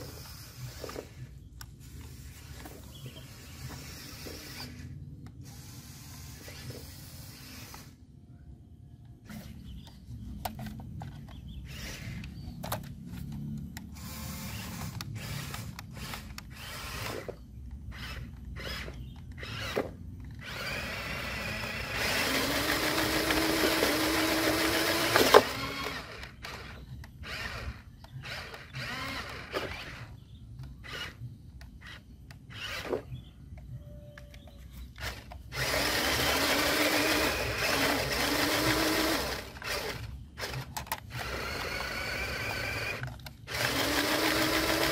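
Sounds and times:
electric motor whining: 0:13.8 - 0:30.2, 0:35.0 - 0:44.9.

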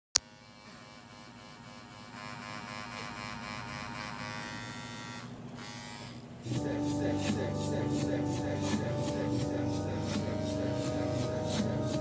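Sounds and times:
tattoo machine buzzing: 0:00.2 - 0:06.2.

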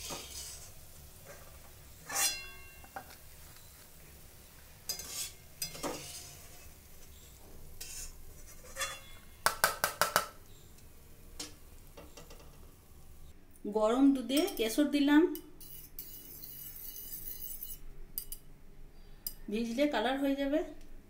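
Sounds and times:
spoon scraping a ceramic plate: 0:02.0 - 0:02.9, 0:04.9 - 0:07.2, 0:07.8 - 0:09.3, 0:15.6 - 0:17.8.

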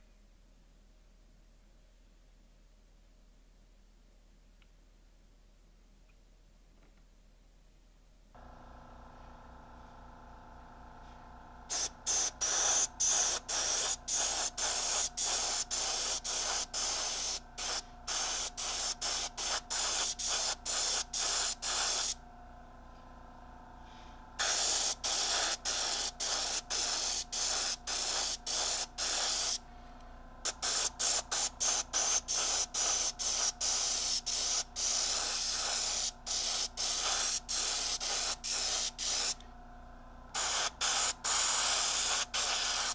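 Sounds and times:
low steady hum: 0:00.0 - 0:32.9, 0:33.6 - 0:42.8
airbrush spraying hissing bursts: 0:11.7 - 0:22.2, 0:24.4 - 0:29.6, 0:30.4 - 0:39.4, 0:40.4 - 0:42.9.

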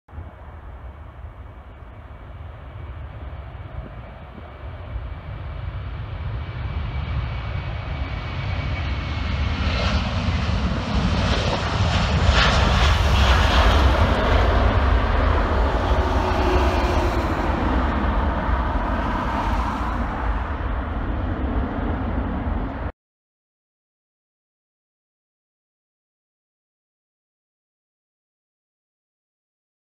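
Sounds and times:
jet airliner taking off: 0:00.1 - 0:22.9.

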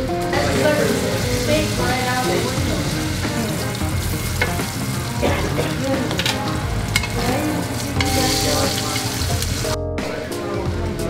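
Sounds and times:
steak sizzling in a skillet: 0:00.0 - 0:09.8
metal tongs clicking on pan: 0:05.7 - 0:09.4.

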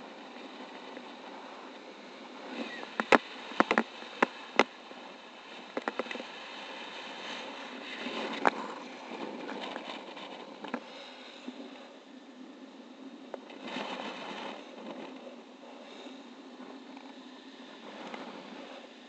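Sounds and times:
wind rushing over microphone: 0:00.0 - 0:19.0
sharp clicks and knocks: 0:03.0 - 0:04.7.

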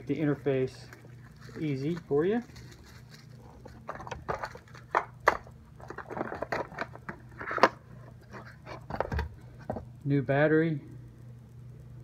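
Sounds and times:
bubble wrap crinkling: 0:00.0 - 0:04.9.

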